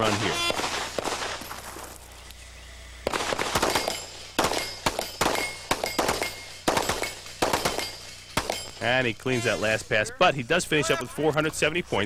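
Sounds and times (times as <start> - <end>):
handgun shots: 3.1 - 8.8
struck steel ringing: 3.7 - 9.6.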